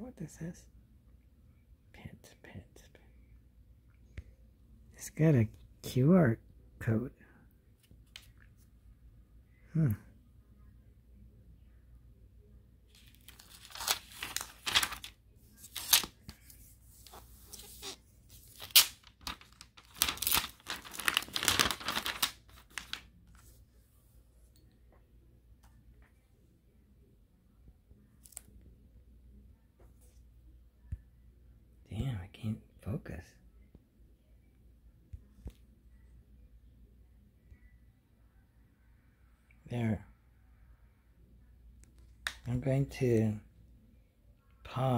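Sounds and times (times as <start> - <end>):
plastic film crinkling: 12.9 - 23.1.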